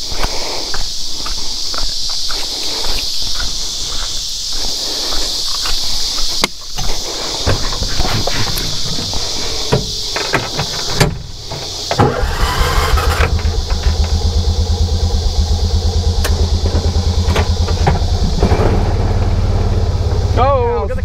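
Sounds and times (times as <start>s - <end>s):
engine cranking: 7.6s - 21.0s
engine idling: 7.8s - 21.0s.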